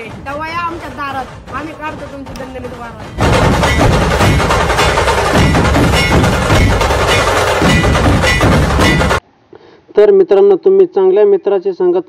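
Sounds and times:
loud music with heavy percussion: 0.0s - 9.2s.

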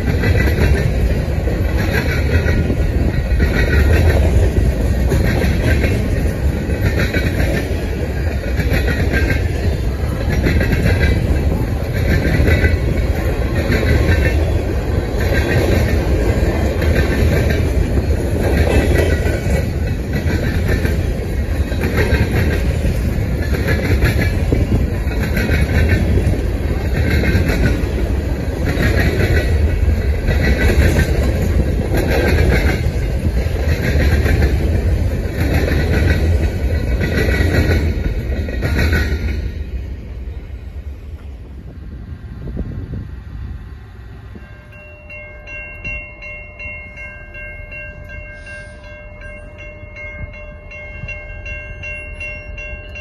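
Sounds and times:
rhythmic clickety-clack of wheels: 0.0s - 40.3s
freight train wheels rumbling: 0.0s - 53.0s.

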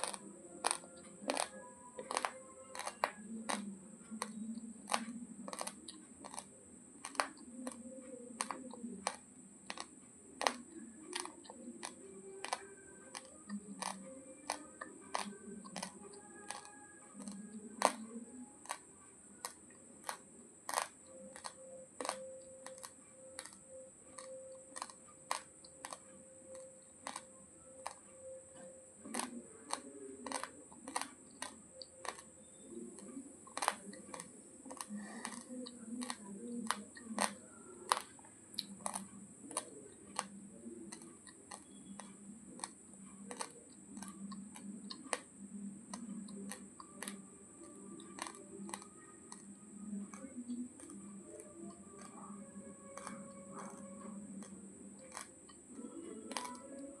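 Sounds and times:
rice grains crunching: 0.0s - 3.6s, 29.0s - 40.3s.

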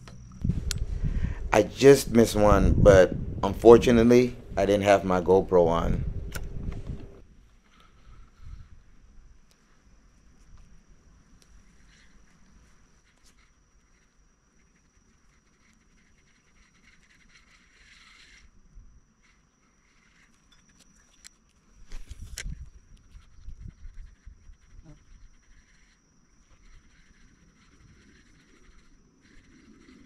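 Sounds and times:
high-pitched whine: 0.0s - 7.3s.

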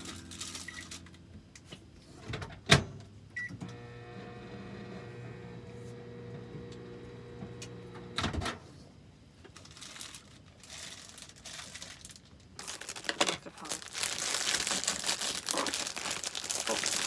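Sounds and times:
plastic bag crinkling: 0.0s - 1.1s, 9.5s - 17.0s
microwave oven humming: 2.8s - 8.6s.

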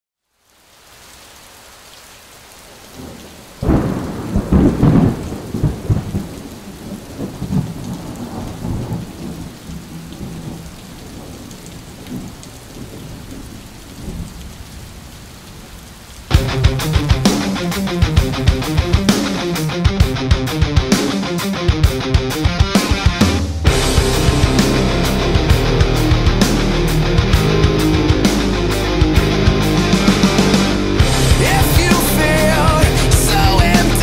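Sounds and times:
steady rain hiss: 0.2s - 21.7s, 22.7s - 34.0s
thunder rumble: 3.0s - 19.7s.

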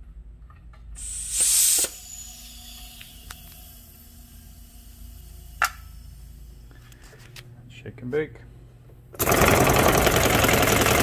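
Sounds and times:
faint steady hum: 0.0s - 9.2s
compressed air hiss: 1.0s - 2.2s.

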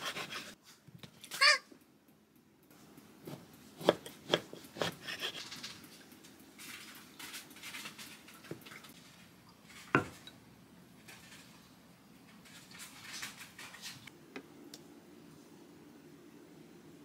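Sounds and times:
knife cutting toasted bread: 3.2s - 5.7s.

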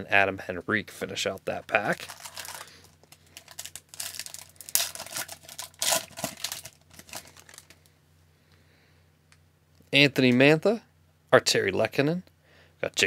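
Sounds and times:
foil wrapper tearing and crinkling: 1.9s - 7.8s.

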